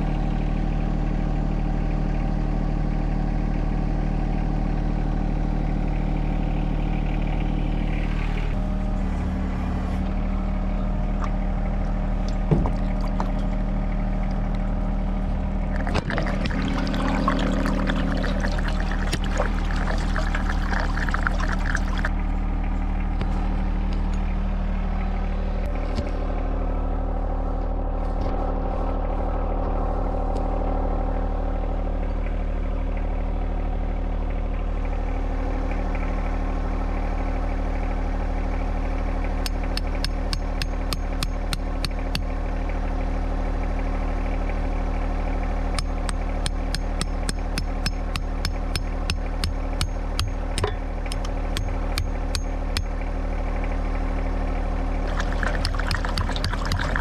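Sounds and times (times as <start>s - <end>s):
tractor diesel engine running: 0.0s - 57.0s
rattling pouring noise: 15.7s - 22.2s, 55.0s - 57.0s.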